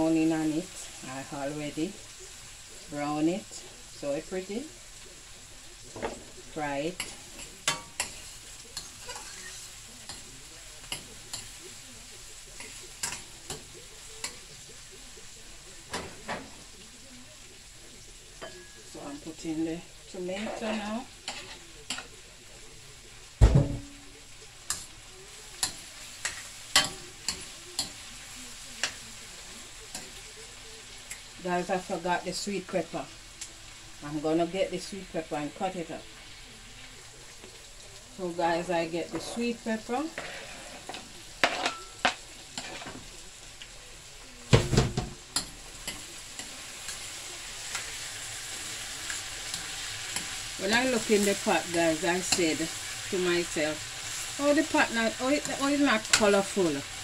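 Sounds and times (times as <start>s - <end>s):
food sizzling in hot oil: 0.0s - 57.0s
loud knock on pan: 23.4s - 23.9s, 44.5s - 45.2s.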